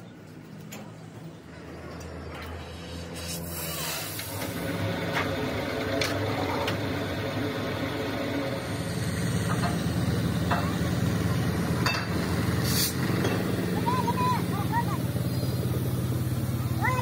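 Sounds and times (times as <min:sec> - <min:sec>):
engine idling: 0:01.0 - 0:17.0.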